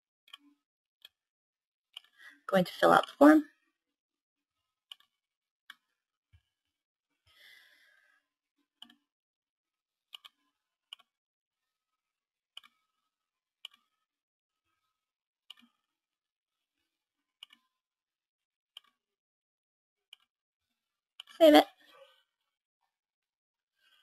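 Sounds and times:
computer mouse clicks: 18.8s - 19.0s.

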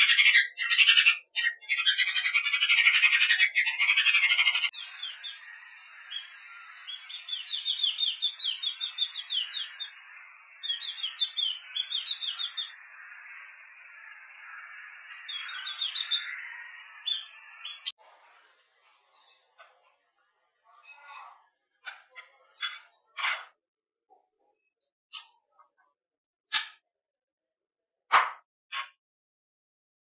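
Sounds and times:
small birds chirping: 0.0s - 18.0s.

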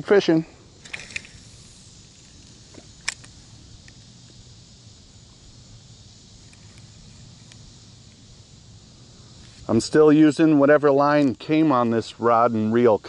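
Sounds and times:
insects hissing: 0.0s - 13.0s
fishing reel bail snapping shut: 0.8s - 1.6s, 2.2s - 4.0s.

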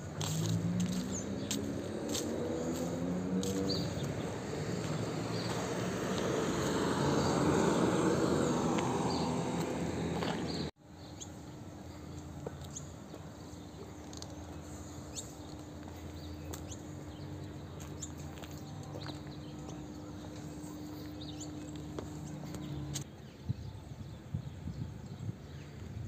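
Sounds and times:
motor vehicle passing: 0.0s - 10.7s, 13.5s - 23.1s
birds chirping: 0.2s - 25.9s.

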